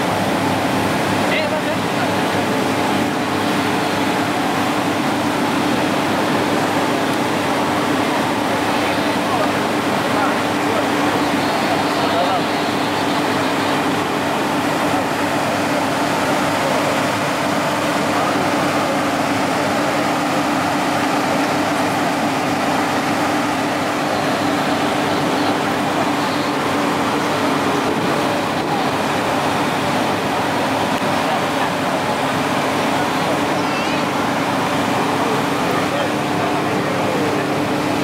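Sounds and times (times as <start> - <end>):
machinery droning: 0.0 - 38.0
faint background voices: 1.2 - 38.0.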